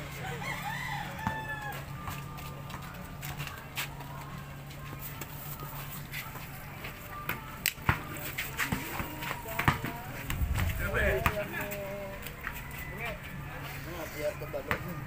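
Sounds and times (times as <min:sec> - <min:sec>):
rooster crowing: 0:00.2 - 0:01.8, 0:12.4 - 0:13.7
basketball bouncing on concrete: 0:08.7 - 0:11.9
steady low hum: 0:10.2 - 0:12.6.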